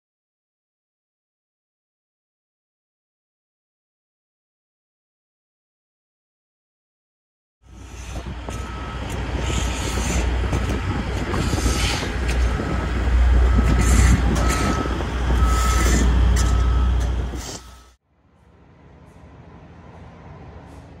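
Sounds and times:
heavy low rumble: 7.7s - 21.0s
reversing alarm beeping: 8.1s - 18.0s.

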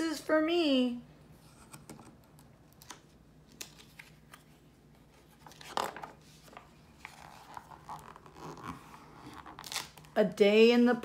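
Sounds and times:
book page turning: 2.7s - 10.2s.

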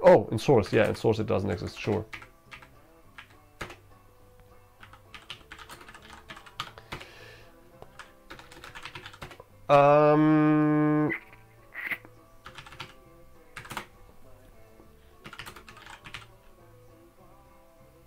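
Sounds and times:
faint background music: 0.0s - 18.0s
computer keyboard typing: 0.8s - 3.8s, 4.8s - 7.1s, 7.9s - 9.4s, 12.4s - 13.0s, 13.6s - 13.9s, 15.2s - 16.3s.

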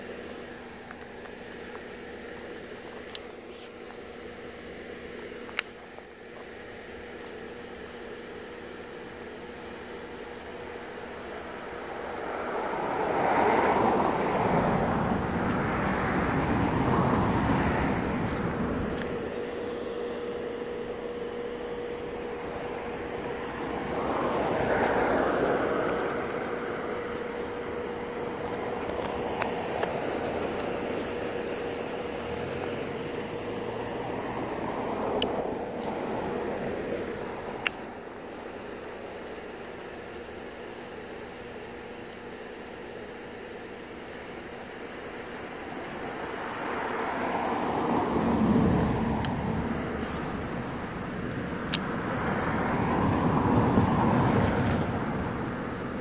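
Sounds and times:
faint steady hum: 0.0s - 56.0s
vehicles passing: 8.7s - 39.6s, 44.7s - 56.0s
faint bird chirps: 11.0s - 11.7s, 31.6s - 32.2s.

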